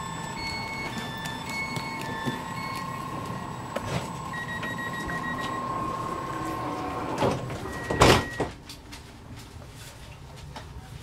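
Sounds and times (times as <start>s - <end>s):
door warning tone with beeping: 0.0s - 8.6s
sliding doors shutting thump: 3.8s - 8.5s.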